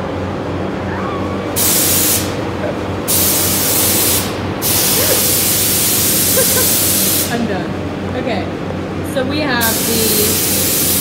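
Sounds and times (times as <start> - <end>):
steady machine hum: 0.0 - 11.0
compressed air hissing: 1.6 - 2.4, 3.1 - 7.4, 9.6 - 11.0.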